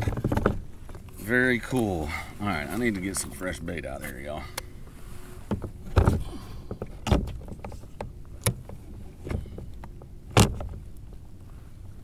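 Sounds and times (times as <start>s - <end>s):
gear knocks and clunks: 0.0s - 1.2s, 5.4s - 11.2s.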